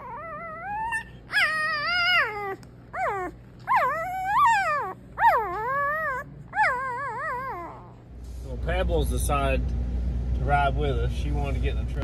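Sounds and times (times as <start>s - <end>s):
newborn puppies crying: 0.0s - 8.1s.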